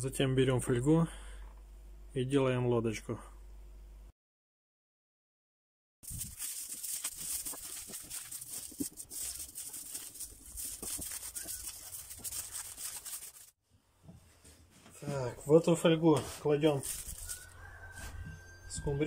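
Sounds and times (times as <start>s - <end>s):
aluminium foil crinkling: 6.0s - 13.6s, 16.7s - 17.8s.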